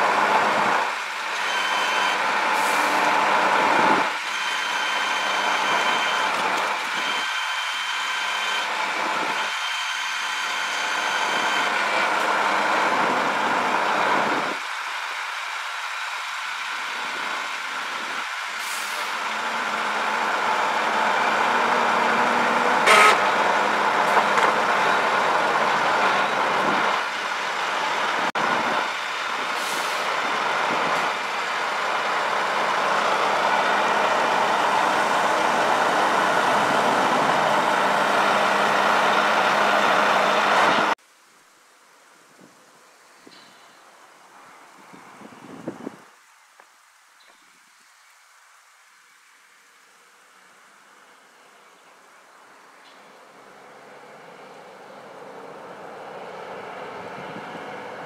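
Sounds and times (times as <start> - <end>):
diesel truck engine running: 0.0 - 41.0, 53.6 - 58.0
faint outdoor noise: 0.0 - 58.0.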